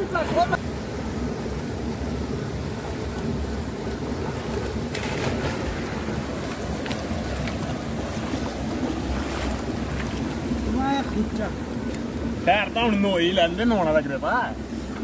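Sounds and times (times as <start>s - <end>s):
river and small waterfall rushing: 0.0s - 15.0s
swimmers splashing: 4.2s - 12.4s.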